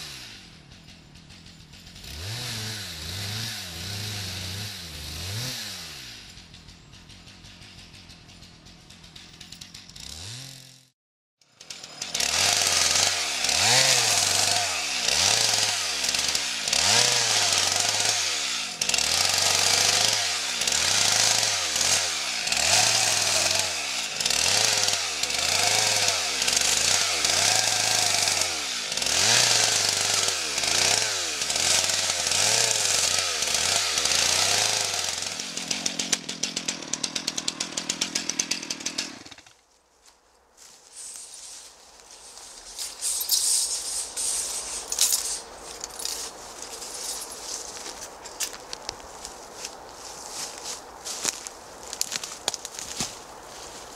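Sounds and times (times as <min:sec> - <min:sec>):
chainsaw revving: 0:00.0 - 0:00.6, 0:01.2 - 0:06.4, 0:09.0 - 0:39.6.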